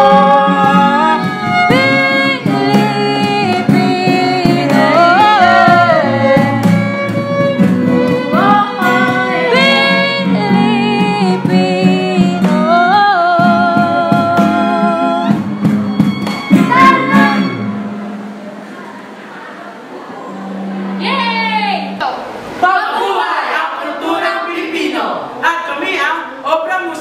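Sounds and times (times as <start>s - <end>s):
people singing: 0.0s - 15.6s
violin: 0.0s - 18.2s
cajon beat: 0.0s - 18.4s
acoustic and electric guitars: 0.0s - 22.7s.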